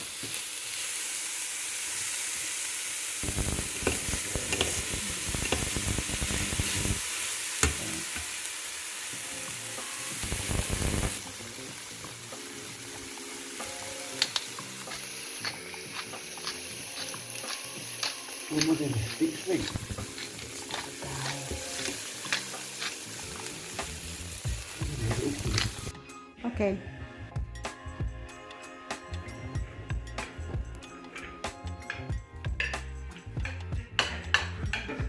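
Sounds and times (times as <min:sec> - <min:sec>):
vegetables sizzling in oil: 0:00.0 - 0:25.9
spoon scraping pan: 0:14.2 - 0:23.2.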